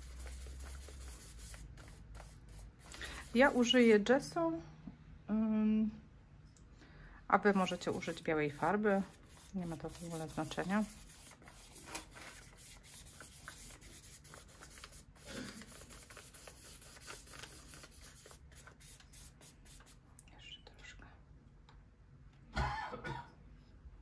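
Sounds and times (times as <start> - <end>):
rubbing and scratching on paper: 0.0 - 4.0, 7.5 - 20.0.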